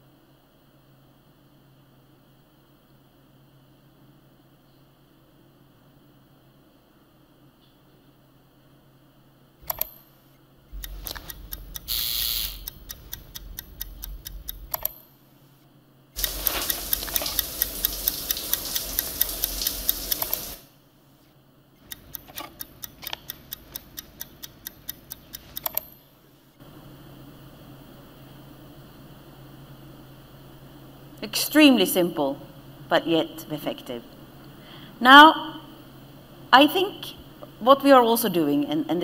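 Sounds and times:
clock ticking: 0:10.7 - 0:15.0, 0:16.2 - 0:20.6, 0:21.8 - 0:25.9.

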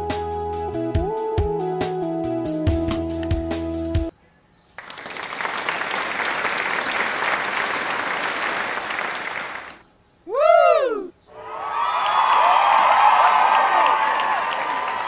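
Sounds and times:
crowd applauding: 0:04.8 - 0:09.8, 0:11.6 - 0:15.0
crowd noise: 0:04.8 - 0:09.8.

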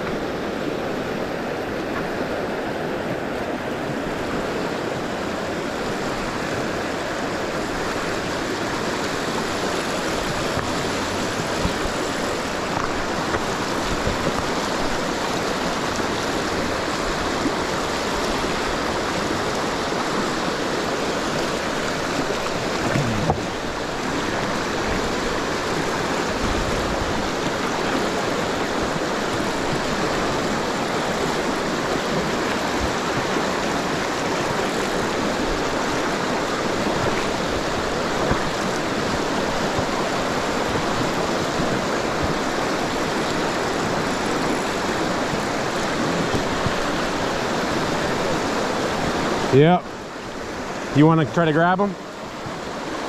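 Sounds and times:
river rushing over rocks: 0:00.0 - 0:53.0.

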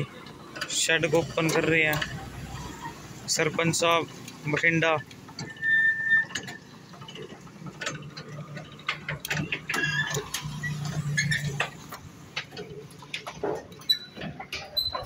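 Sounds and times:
shutter squeaks: 0:05.4 - 0:06.7, 0:09.3 - 0:11.8, 0:13.8 - 0:15.0.

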